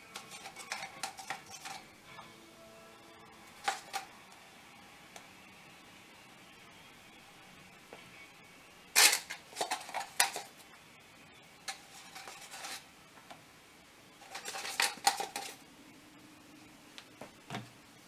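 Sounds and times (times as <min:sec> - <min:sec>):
paint supplies clattering: 0:00.1 - 0:01.9, 0:03.6 - 0:04.1, 0:09.0 - 0:10.6, 0:11.7 - 0:12.8, 0:14.2 - 0:15.6.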